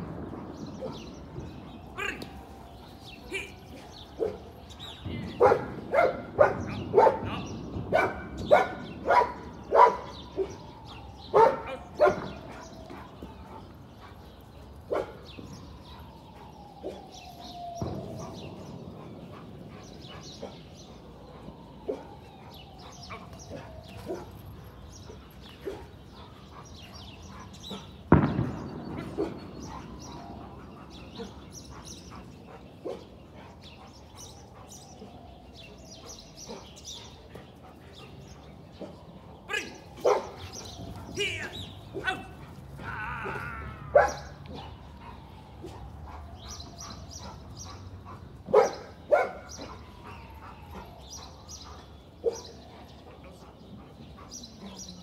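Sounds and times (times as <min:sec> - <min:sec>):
dog barking: 0:05.4 - 0:10.6, 0:11.3 - 0:12.6, 0:14.9 - 0:15.2, 0:40.0 - 0:40.4, 0:43.9 - 0:44.8, 0:48.5 - 0:50.0, 0:52.2 - 0:52.6.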